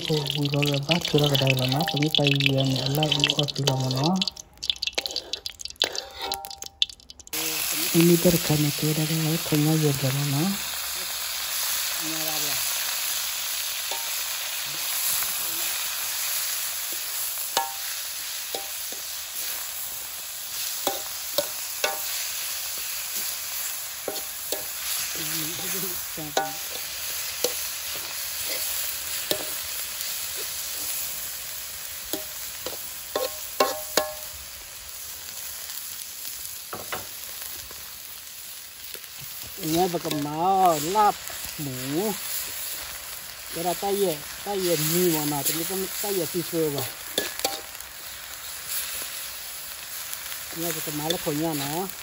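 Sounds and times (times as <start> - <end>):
meat sizzling in hot oil: 0.0 - 52.0
metal spatula scraping a wok: 4.9 - 6.7, 12.7 - 31.2, 32.0 - 34.3, 44.3 - 49.4.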